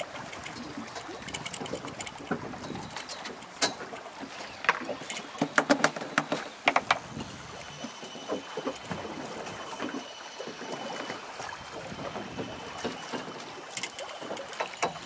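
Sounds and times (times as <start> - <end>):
sea wash: 0.0 - 15.0
wind: 0.0 - 15.0
fish slapping on boat deck: 3.4 - 7.1.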